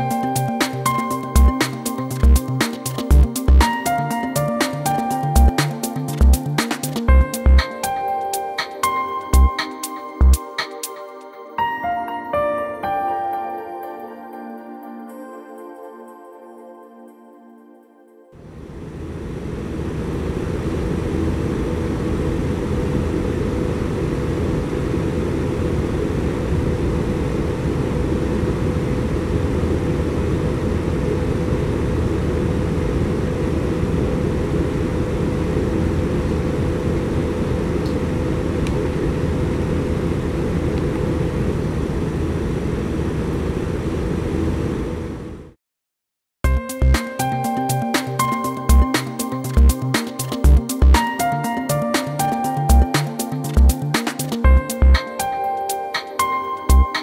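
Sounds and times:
faint hum: 18.4 - 45.6.

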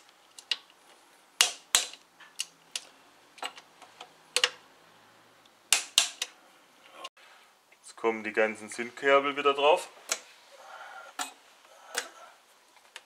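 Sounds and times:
hand tools clicking on metal: 11.2 - 12.2.

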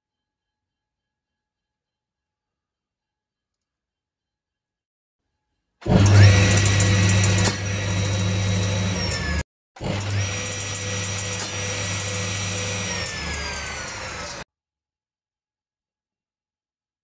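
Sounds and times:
circular saw whine: 6.0 - 14.4.

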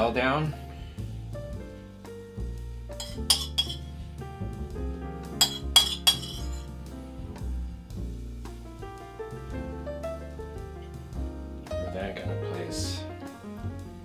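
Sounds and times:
background music: 0.0 - 14.0
metal spoon clinking on ceramic bowl: 3.0 - 3.8, 5.4 - 6.6.

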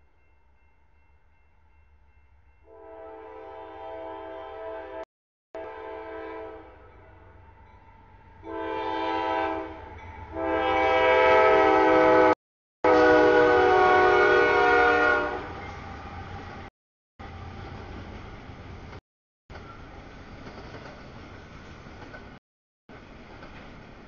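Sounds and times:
locomotive air horn blasts: 2.7 - 5.0, 5.6 - 6.9, 8.5 - 15.6
train rumble: 12.9 - 24.0.

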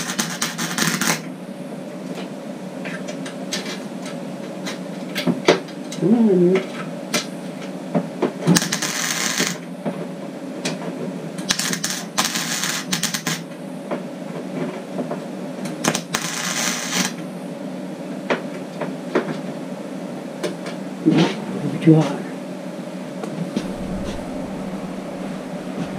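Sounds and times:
welding arc crackling: 0.0 - 1.3, 8.5 - 9.7, 11.4 - 13.4, 15.8 - 17.2
low hum: 23.2 - 25.9.

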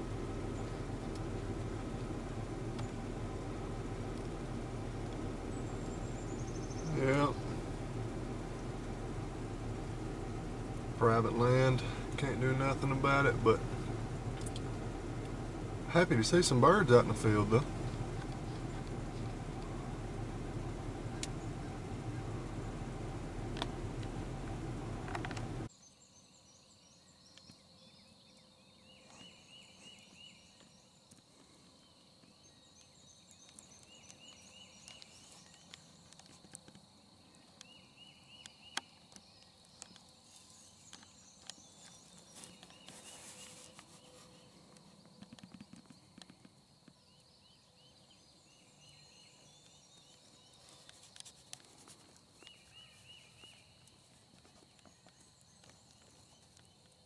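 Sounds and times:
vehicle engine idling: 0.0 - 25.7
high birdsong: 0.0 - 57.0
songbird trilling: 5.5 - 7.7
small clicks: 14.3 - 14.8.

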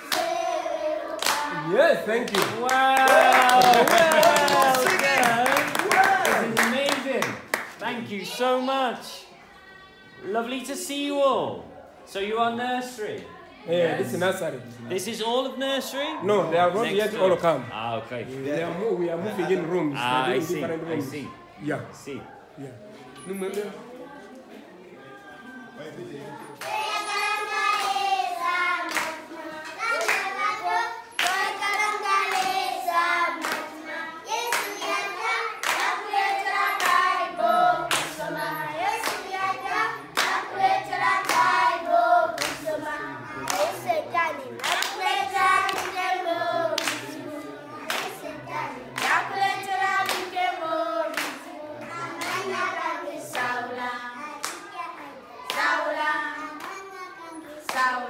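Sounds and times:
children singing: 0.0 - 1.9, 26.5 - 58.0
hands clapping: 1.2 - 1.5, 2.2 - 7.8, 29.8 - 30.3, 31.2 - 32.6, 34.4 - 35.0, 35.6 - 36.0, 36.8 - 37.1, 37.9 - 38.3, 42.4 - 42.7, 43.4 - 43.8, 44.6 - 46.1, 46.7 - 47.2, 47.8 - 49.4, 50.0 - 50.4, 51.1 - 52.6.

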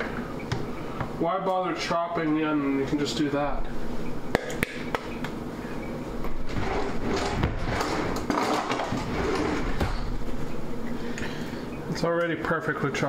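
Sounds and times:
clattering and scraping: 6.4 - 10.6.

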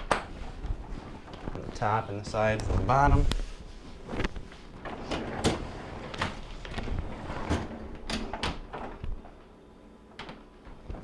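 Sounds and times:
freezer drawer sliding on track: 4.8 - 9.0.

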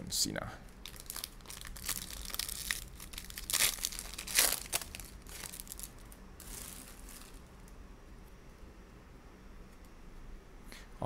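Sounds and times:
foil wrapper tearing and crinkling: 0.8 - 7.4.

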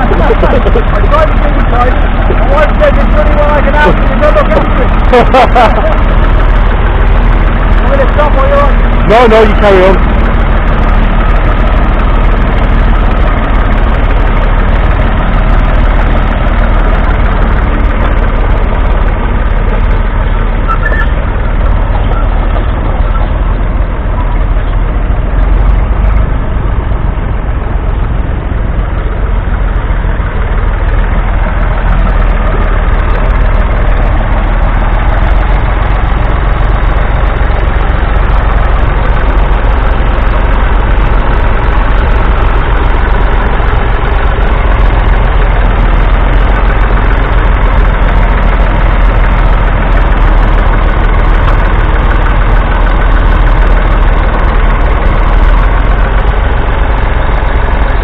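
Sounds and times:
tractor diesel engine under load: 0.0 - 58.0.

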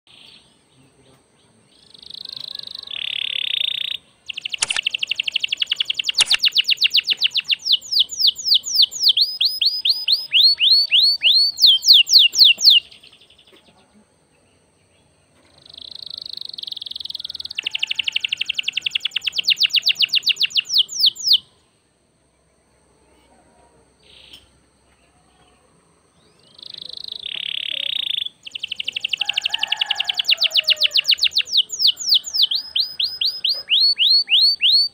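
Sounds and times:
canary singing: 1.8 - 13.7, 15.4 - 21.6, 26.2 - 34.9.

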